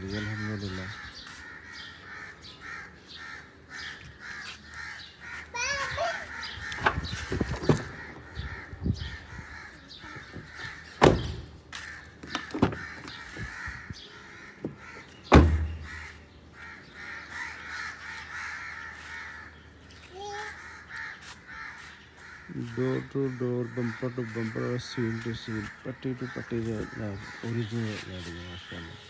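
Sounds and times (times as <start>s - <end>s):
crows cawing: 0.0s - 29.0s
car door shutting with thump: 11.0s - 11.5s, 14.6s - 15.7s.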